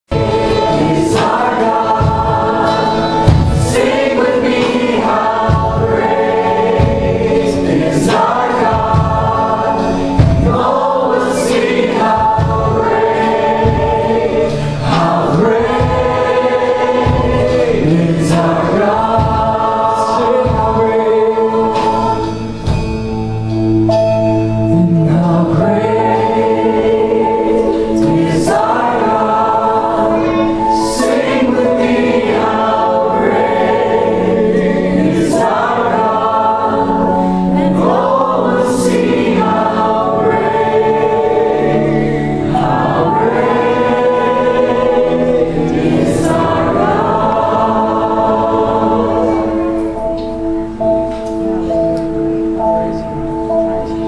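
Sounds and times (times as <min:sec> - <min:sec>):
group singing slow chorus: 0:00.1 - 0:23.8, 0:24.7 - 0:51.3
band accompaniment: 0:00.1 - 0:54.0.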